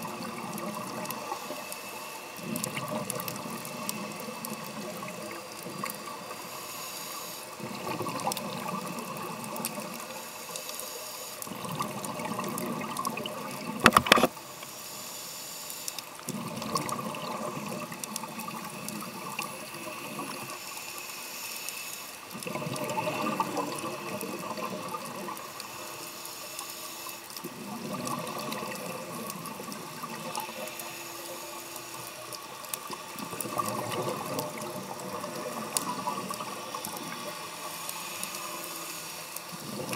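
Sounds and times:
exhaled bubbles underwater: 0.0s - 1.7s, 2.4s - 6.3s, 7.6s - 10.1s, 11.5s - 13.9s, 16.3s - 20.6s, 22.3s - 25.7s, 27.4s - 30.8s, 32.2s - 38.7s, 39.5s - 39.9s.

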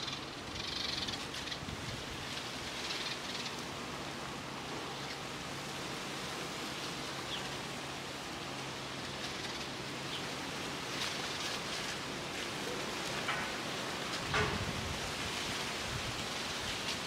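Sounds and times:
outdoor ambient hiss: 0.0s - 17.0s.

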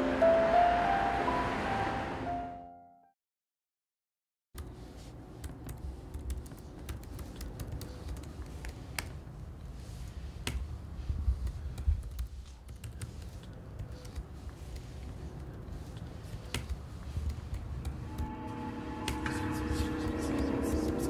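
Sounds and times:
laptop keyboard clicks: 16.4s - 18.0s.

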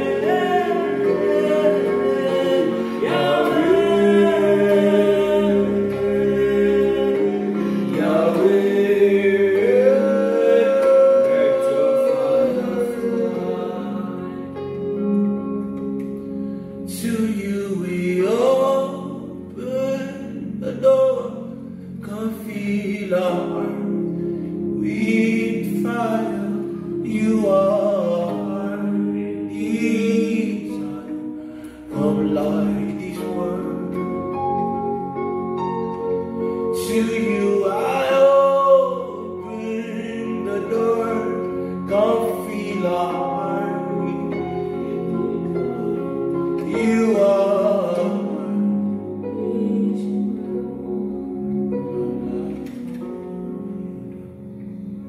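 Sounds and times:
men singing gospel song: 0.0s - 14.8s, 16.9s - 21.4s, 24.7s - 34.6s, 36.7s - 51.1s
electronic keyboard chords: 0.0s - 55.0s.

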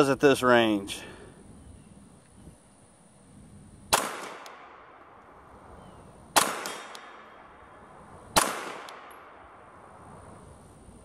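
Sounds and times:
pistol shots with echo: 3.9s - 5.3s, 6.3s - 9.9s.

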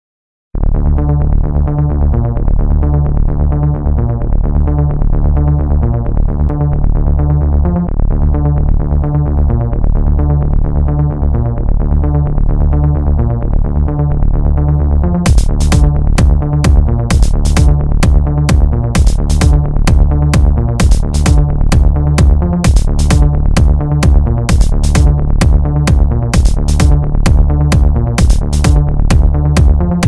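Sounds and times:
synthesizer music with steady beat: 0.8s - 30.0s.

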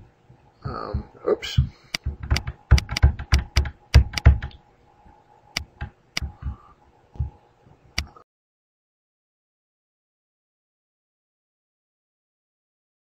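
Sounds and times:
faint steady hum: 0.0s - 8.2s
computer mouse clicking: 1.9s - 4.6s, 5.5s - 6.6s, 8.0s - 8.2s.

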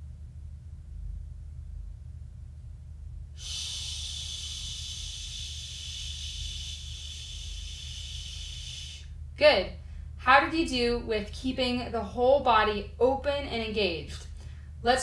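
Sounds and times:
low steady hum: 0.0s - 15.0s
woman exhaling shh: 3.4s - 9.2s.

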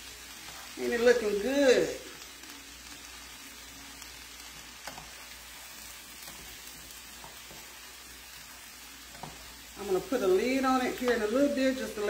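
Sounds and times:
vegetables sizzling in grease: 0.0s - 12.0s.

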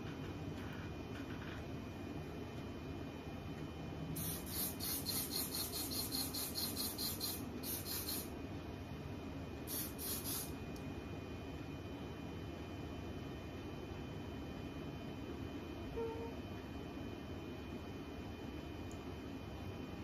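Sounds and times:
aerosol spray hissing: 4.2s - 8.3s, 9.7s - 10.5s.

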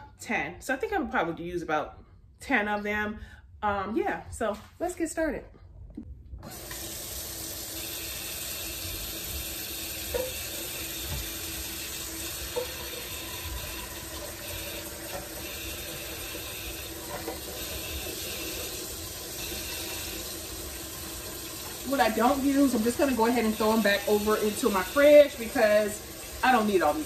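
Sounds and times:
tap running into pot: 10.1s - 11.4s, 12.4s - 14.2s.

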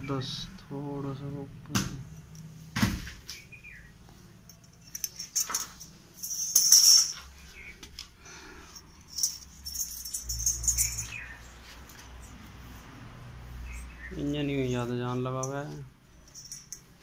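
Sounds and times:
metal hand tools clinking: 4.4s - 7.7s, 8.6s - 12.4s, 13.6s - 17.0s.

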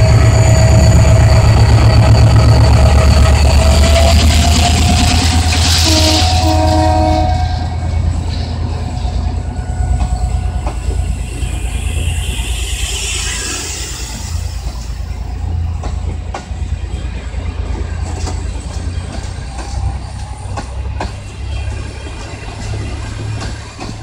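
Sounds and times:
diesel locomotive engine rumbling: 0.0s - 24.0s
train horn blasts: 4.8s - 8.6s, 9.7s - 13.7s
train wheels clicking over rail joints: 7.6s - 12.0s, 12.6s - 24.0s.

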